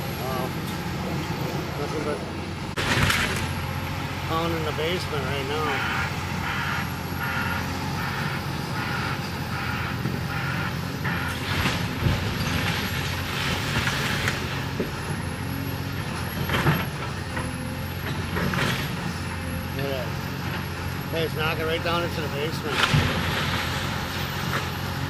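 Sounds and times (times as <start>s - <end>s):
excavator diesel engine running: 0.0s - 25.0s
debris crashing: 2.7s - 3.8s, 11.4s - 15.0s, 22.5s - 24.8s.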